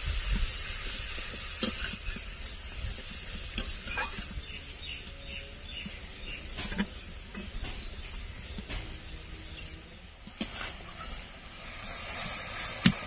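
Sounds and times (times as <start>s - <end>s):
paste sizzling in oil: 0.0s - 4.8s, 10.1s - 13.0s
metal spatula scraping pan: 3.6s - 4.3s.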